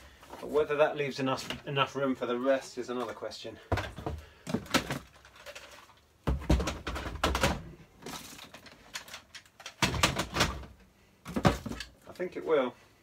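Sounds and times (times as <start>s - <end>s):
plastic toy blasters clattering: 4.6s - 6.0s, 6.6s - 10.6s.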